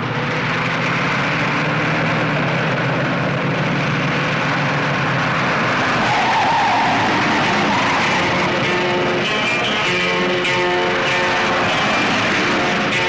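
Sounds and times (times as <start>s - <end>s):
car engine drone: 0.0s - 13.0s
high-pitched whine: 0.0s - 13.0s
loud tyre and road noise: 0.0s - 13.0s.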